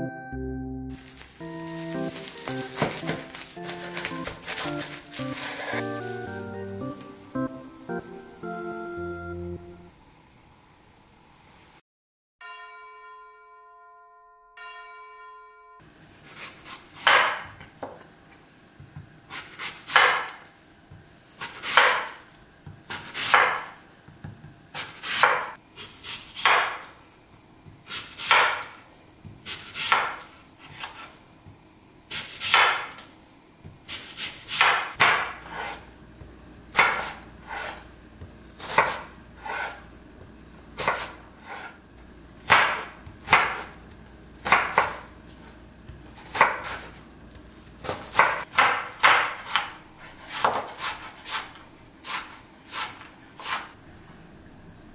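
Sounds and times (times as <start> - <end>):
knife crunching through apple: 0.9 - 7.0.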